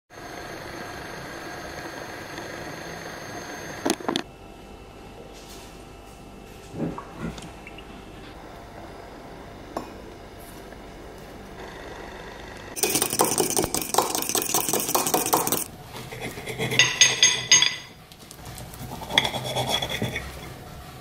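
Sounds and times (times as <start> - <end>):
spoon clinking on mug: 12.8 - 15.7
spoon scraping inside mug: 12.8 - 17.6, 18.8 - 20.6
knife scraping ceramic plate: 12.8 - 17.9, 18.8 - 20.6.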